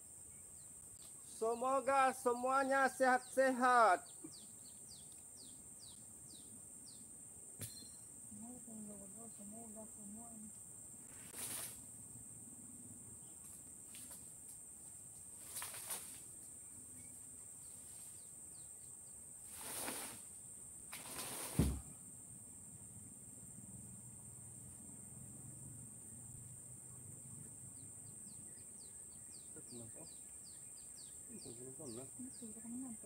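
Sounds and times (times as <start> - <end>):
high insect drone: 0.0 - 33.0
wooden boards scraping and rustling: 21.0 - 21.9.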